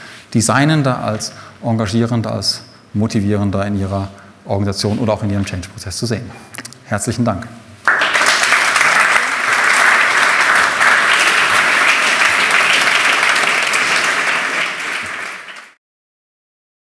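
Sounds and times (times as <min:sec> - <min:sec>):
audience applauding: 0:07.8 - 0:15.8.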